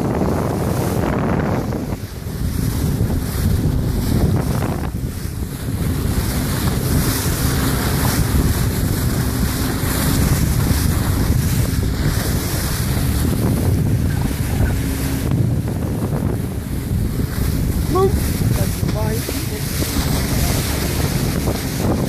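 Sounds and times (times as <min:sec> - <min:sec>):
boat bow wave splashing: 0:00.0 - 0:22.0
wind buffeting microphone: 0:00.0 - 0:22.0.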